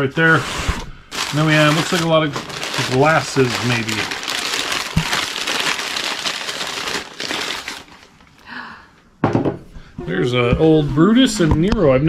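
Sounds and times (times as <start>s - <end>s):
paper crinkling: 1.1s - 8.4s.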